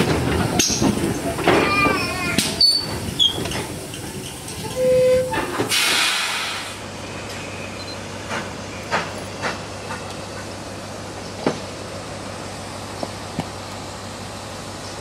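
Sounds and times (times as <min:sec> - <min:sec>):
steam hissing: 0:02.0 - 0:06.8.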